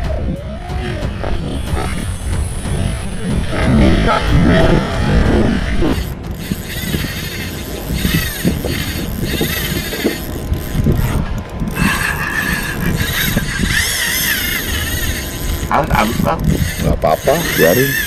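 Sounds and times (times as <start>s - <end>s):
wavering high whine: 0.0s - 16.8s
spinning reel clicking: 5.9s - 18.0s.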